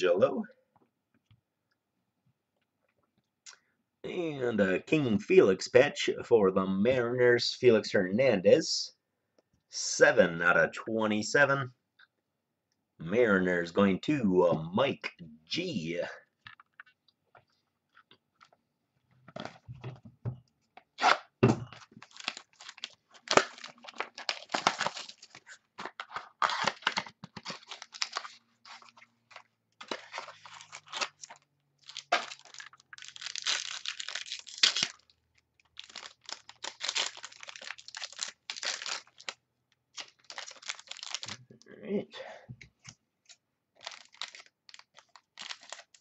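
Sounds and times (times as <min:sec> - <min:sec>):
wrapping crinkling and tearing: 0:21.8 - 0:41.4, 0:43.8 - 0:46.0.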